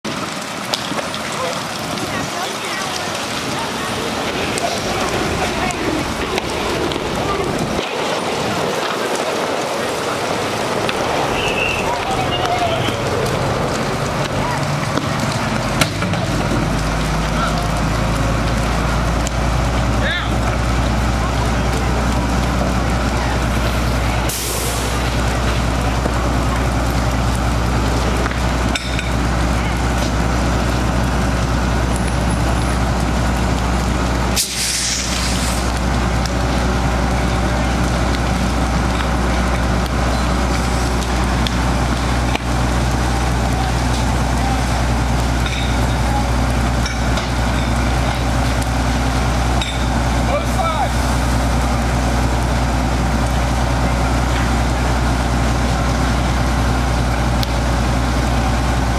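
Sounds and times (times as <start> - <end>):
fire engine pump droning: 0.1 - 58.9
sudden hiss: 24.3 - 25.1, 34.4 - 35.7.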